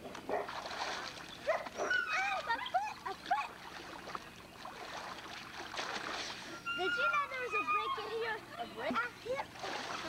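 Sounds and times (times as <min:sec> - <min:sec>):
small dog yipping and whining: 0:01.5 - 0:03.1, 0:06.6 - 0:08.3.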